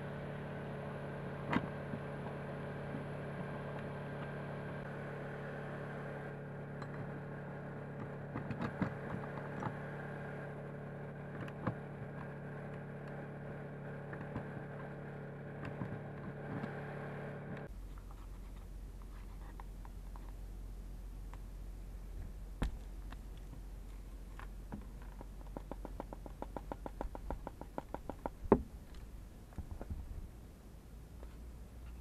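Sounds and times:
steady machine hum: 0:00.0 - 0:18.0
faint low hum: 0:11.3 - 0:32.0.

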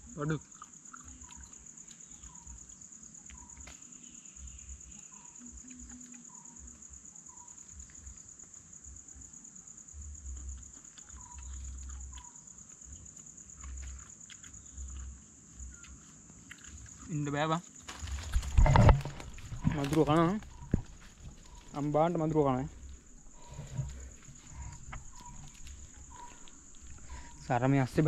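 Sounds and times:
insect drone: 0:00.0 - 0:28.0
clicks and thumps of fruit handling: 0:16.5 - 0:28.0.

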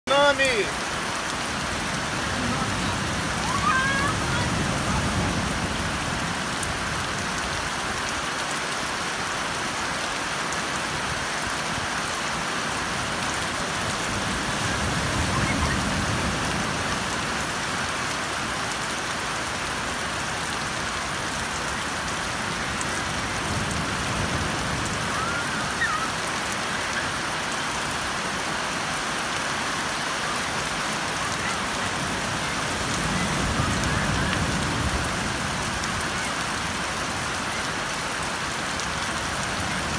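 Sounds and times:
rain falling on beach: 0:00.0 - 0:39.9.

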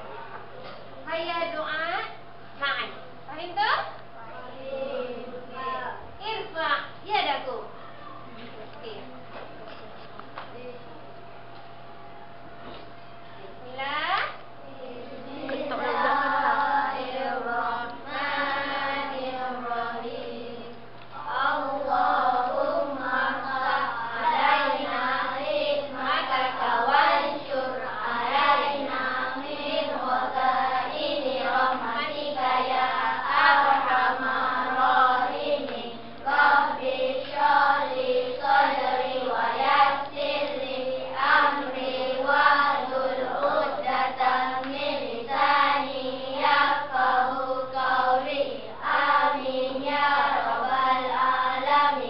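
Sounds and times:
children chanting in unison: 0:14.7 - 0:52.0.

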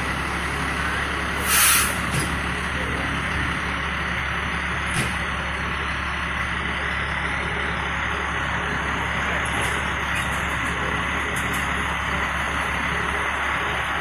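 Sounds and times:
diesel engine idling: 0:00.0 - 0:14.0
air hiss: 0:01.4 - 0:02.0.

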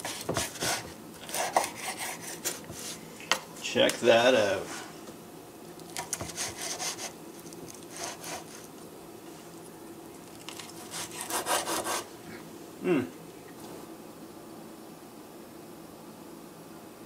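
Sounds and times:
knife crunching through crust: 0:00.0 - 0:03.0, 0:10.2 - 0:12.1.

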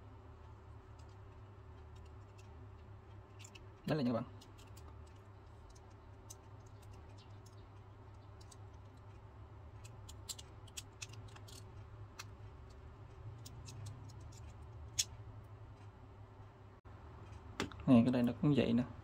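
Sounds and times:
steady low hum: 0:00.0 - 0:19.0
plastic parts clicking and tapping: 0:09.8 - 0:15.1.

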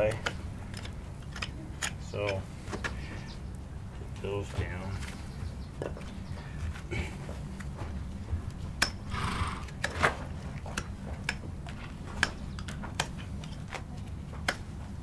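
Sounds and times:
metal tool clicks on hoof: 0:00.1 - 0:03.0, 0:08.8 - 0:10.0.

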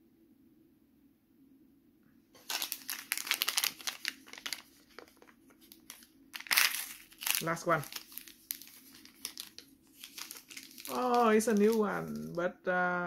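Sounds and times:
toy packet crinkling and tearing: 0:02.4 - 0:12.4.

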